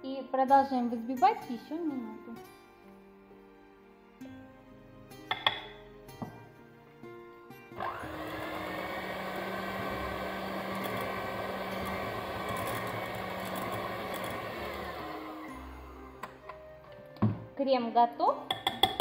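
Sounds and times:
electric hand mixer whining: 7.7s - 16.4s.

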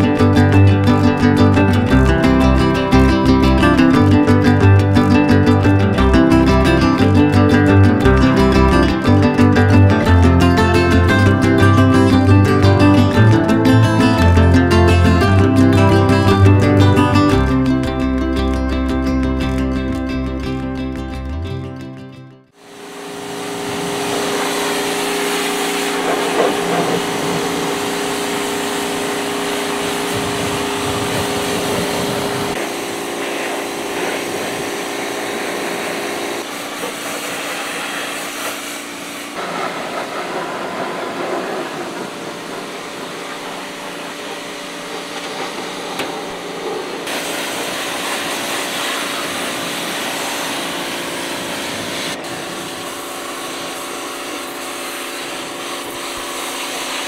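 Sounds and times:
pressure washer motor hum: 22.5s - 57.0s
hissing water jet: 22.7s - 57.0s.

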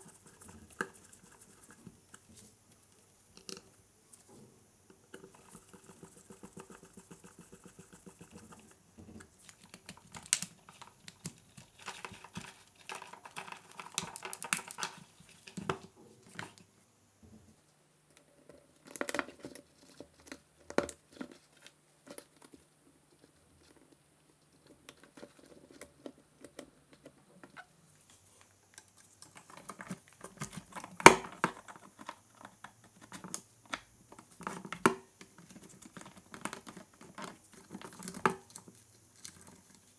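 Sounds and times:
plastic rustles: 9.4s - 16.6s.

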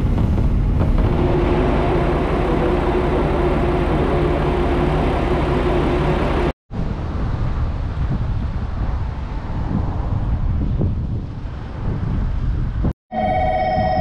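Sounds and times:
trains humming and rumbling: 0.0s - 6.6s
outdoor rumble: 0.0s - 12.9s
wind on microphone: 0.0s - 14.0s.

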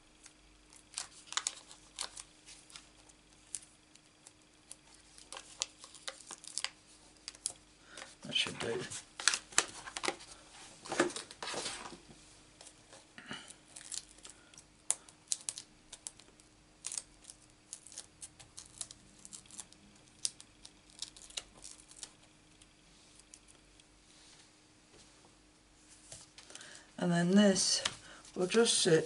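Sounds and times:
paper and plastic rustling: 4.9s - 13.1s.

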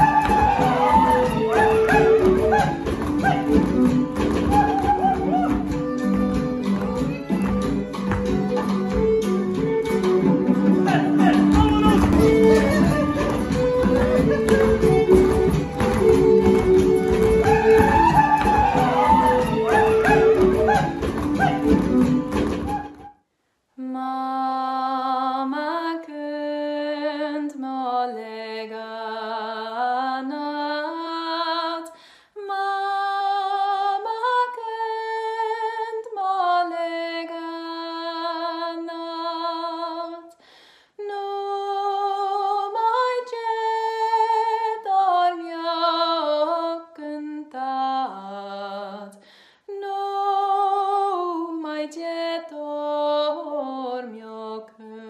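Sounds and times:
person singing unaccompanied: 0.0s - 22.9s.

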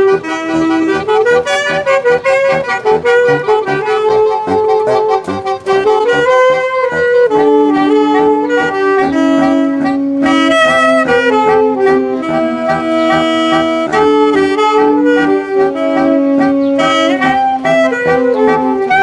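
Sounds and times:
saxophone quartet playing chords: 0.0s - 19.0s.

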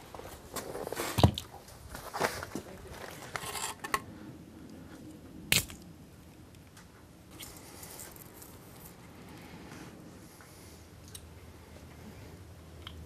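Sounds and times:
hands rustling with wiring: 7.3s - 10.5s.

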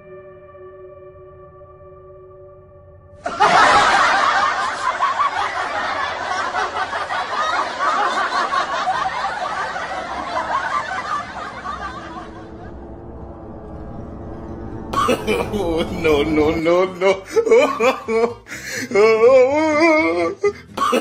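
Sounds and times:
crowd laughing: 3.2s - 13.4s, 15.0s - 19.3s.

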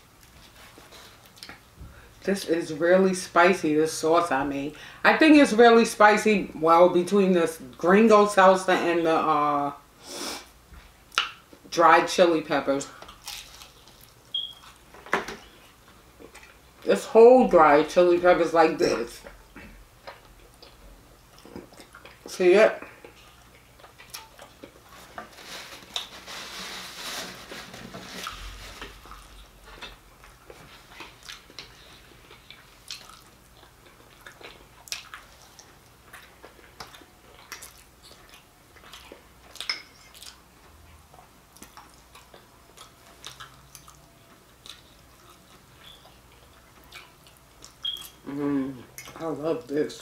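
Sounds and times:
crunchy chewing: 13.0s - 14.8s, 28.2s - 40.4s, 41.1s - 48.2s
mouth sounds: 48.2s - 48.9s.

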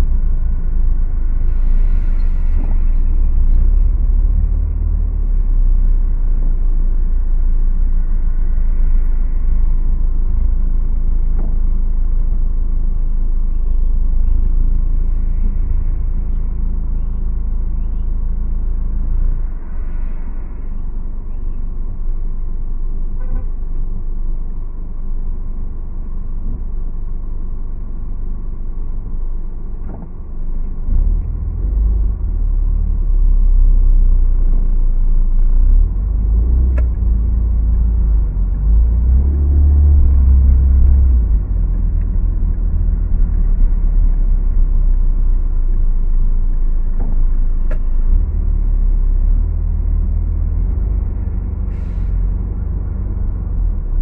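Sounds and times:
car engine and road noise: 0.0s - 54.0s.

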